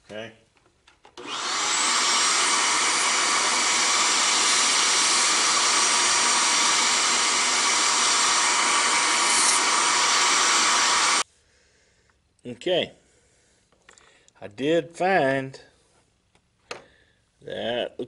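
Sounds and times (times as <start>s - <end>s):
vacuum cleaner running: 1.2s - 11.2s.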